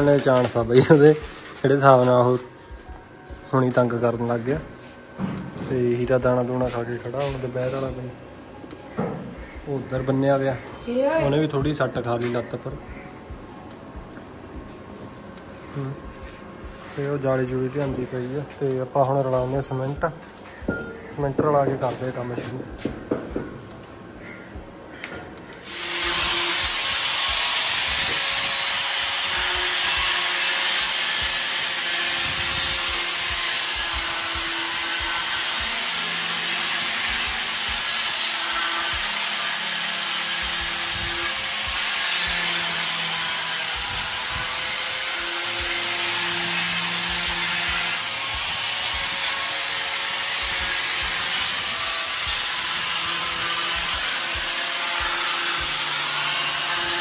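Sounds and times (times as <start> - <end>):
electric drill boring into steel: 25.5 - 57.0.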